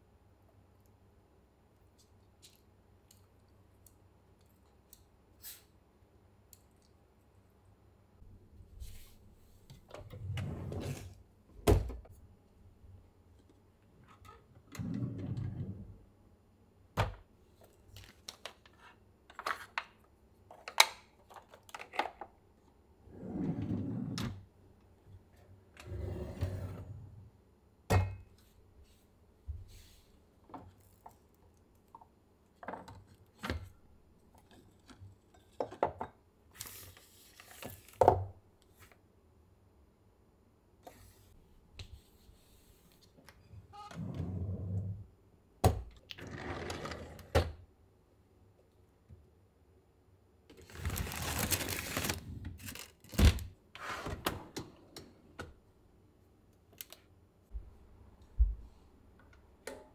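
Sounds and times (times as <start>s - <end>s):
drawers sliding on runners: 10.1s - 11.2s, 14.7s - 15.9s, 23.1s - 24.4s, 25.8s - 27.2s, 43.9s - 45.0s, 46.2s - 47.4s, 53.8s - 54.6s
items clattering in drawers: 50.6s - 54.8s.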